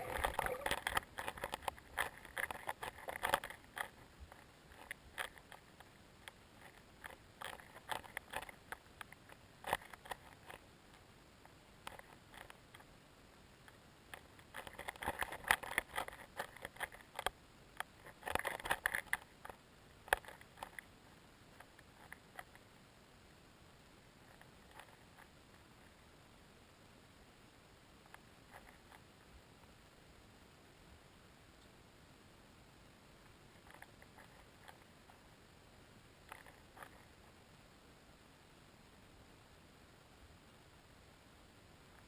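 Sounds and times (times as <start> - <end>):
underwater clicks and crackles: 0.0 - 11.0, 13.6 - 20.9.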